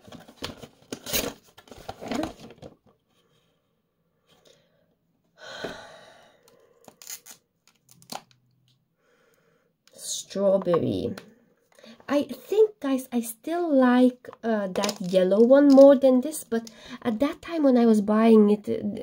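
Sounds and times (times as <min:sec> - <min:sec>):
cardboard packaging tearing: 0:00.0 - 0:02.7, 0:06.9 - 0:08.3.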